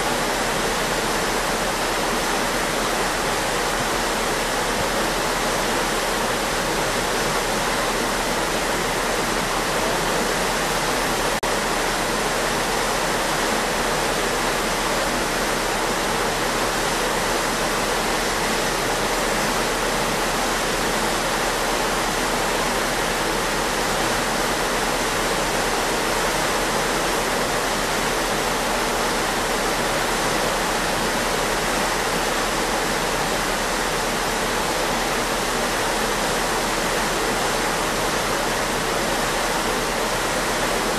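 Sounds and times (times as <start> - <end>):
water rushing in a wake: 0.0 - 40.9.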